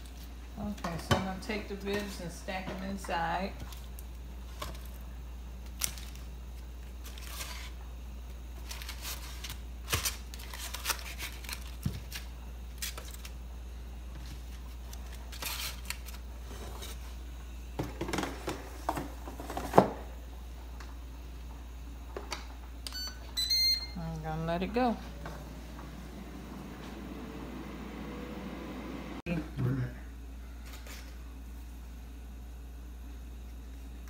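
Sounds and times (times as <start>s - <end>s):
steady low hum: 0.0s - 34.0s
foil crinkling and rustling: 5.6s - 7.8s, 8.5s - 13.4s, 14.2s - 17.0s.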